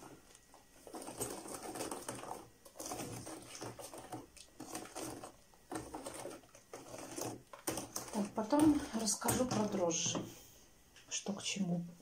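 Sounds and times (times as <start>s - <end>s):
liquid sloshing: 0.0s - 10.5s
whisk rattling against plastic tub: 0.8s - 10.3s.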